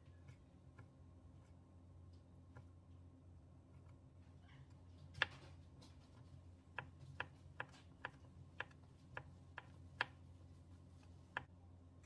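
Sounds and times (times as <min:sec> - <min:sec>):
knife tapping cutting board: 0:06.8 - 0:10.2.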